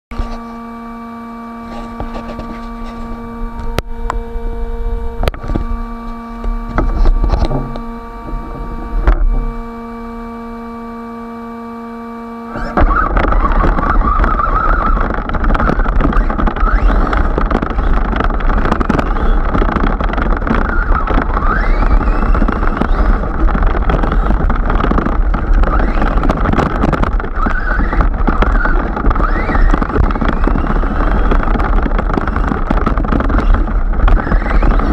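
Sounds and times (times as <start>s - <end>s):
electric hum: 0.1s - 34.9s
electric motor whine: 0.1s - 34.9s
wind and grass rushing: 12.6s - 34.9s.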